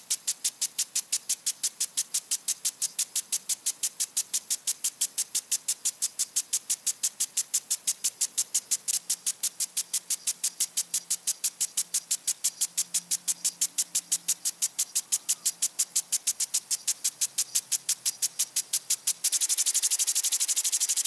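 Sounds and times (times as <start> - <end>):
water sprinkler hissing bursts: 0.0 - 21.0.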